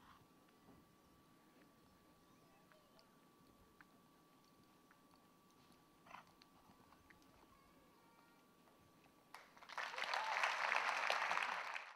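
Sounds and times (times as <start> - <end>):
spectators clapping loudly: 9.3 - 11.9.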